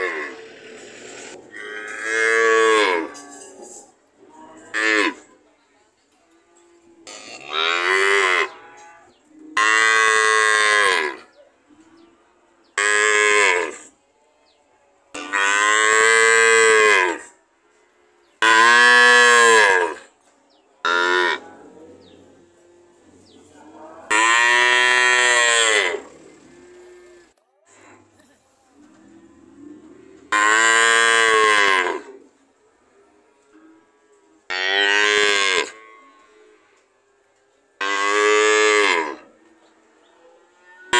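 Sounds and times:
cattle mooing: 20.9s - 27.3s, 28.9s - 32.2s, 40.2s - 40.9s.

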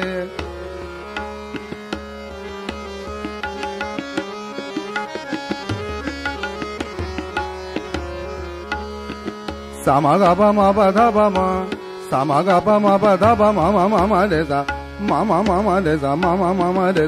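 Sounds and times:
tabla strokes: 0.3s - 12.0s.

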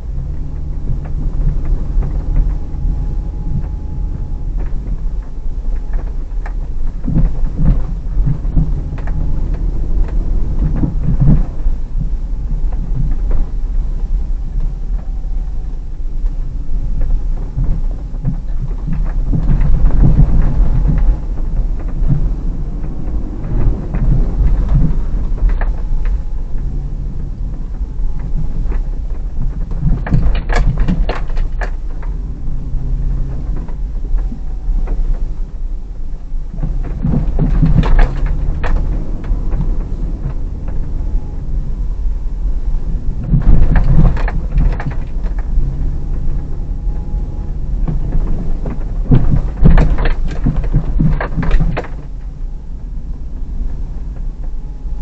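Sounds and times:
car engine and tyres on snow: 0.0s - 55.0s
knocking and rattling: 17.0s - 35.3s, 36.6s - 41.7s, 42.9s - 52.2s.

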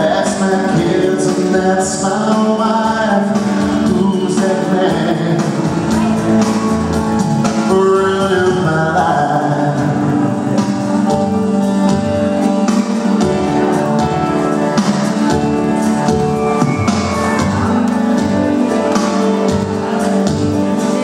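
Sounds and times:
man singing country song: 0.0s - 10.8s
instrumental accompaniment: 0.0s - 21.0s.

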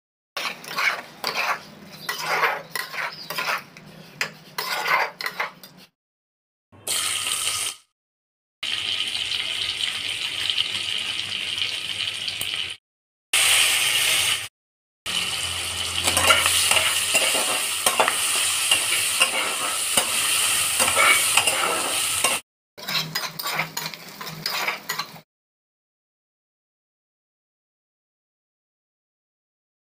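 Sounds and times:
spoon scraping pan: 0.4s - 5.9s, 16.0s - 25.2s
hot oil sizzling: 6.8s - 7.9s, 8.6s - 12.8s, 13.4s - 14.5s, 15.1s - 25.2s.

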